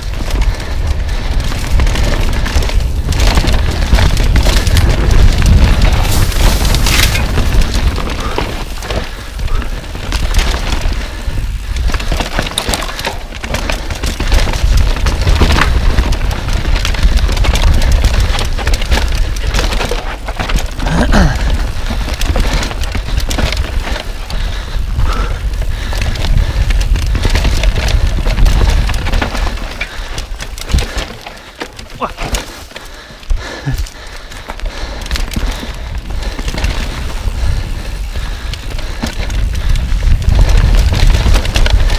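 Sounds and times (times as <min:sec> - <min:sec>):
bike rattling and knocking: 0:00.0 - 0:41.9
tyres running over dirt: 0:00.0 - 0:41.9
wind rumbling on microphone: 0:00.0 - 0:41.9.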